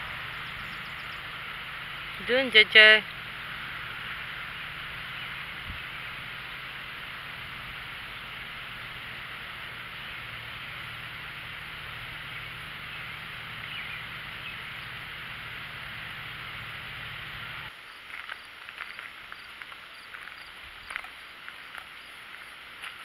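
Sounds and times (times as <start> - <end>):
faint high insect chirp: 0.0 - 23.0
steady hiss and hum: 0.0 - 23.0
footsteps on gravel: 18.0 - 23.0.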